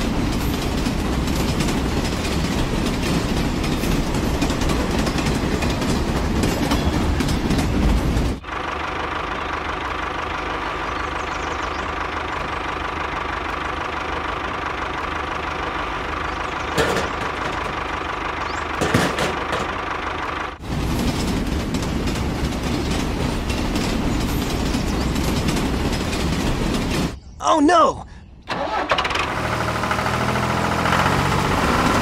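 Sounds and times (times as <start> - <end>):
deeper rough running motor: 0.0 - 27.2, 28.5 - 32.0.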